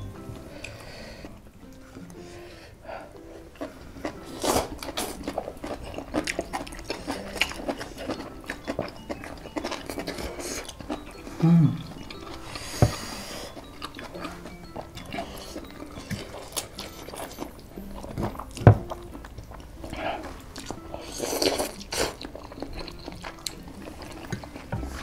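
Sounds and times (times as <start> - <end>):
chewing and smacking: 3.1 - 25.0
person humming: 11.2 - 15.9.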